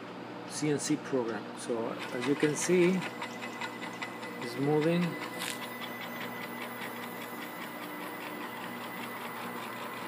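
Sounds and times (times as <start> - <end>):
stepper motor whine: 1.7 - 10.0
fast regular ticking: 2.0 - 10.0.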